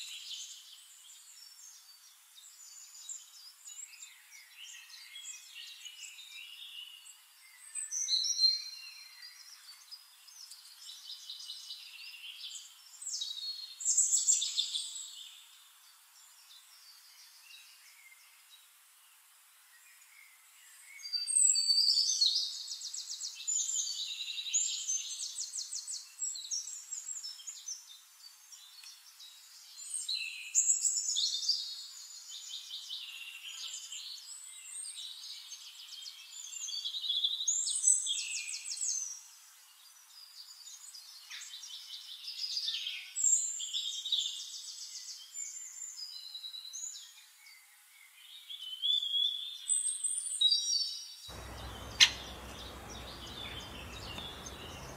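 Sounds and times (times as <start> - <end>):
songbirds trilling and chirping: 20.0 - 54.9.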